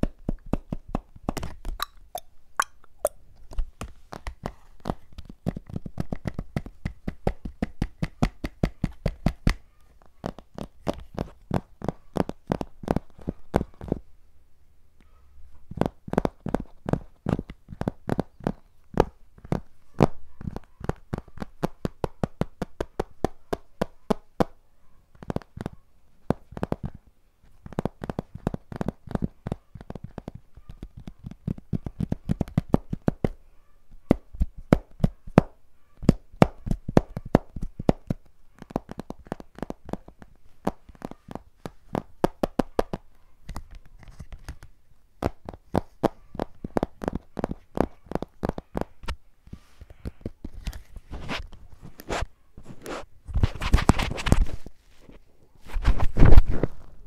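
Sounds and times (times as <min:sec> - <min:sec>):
fingers tapping on hard object: 0:04.2 - 0:09.6, 0:36.1 - 0:43.6, 0:45.2 - 0:48.9.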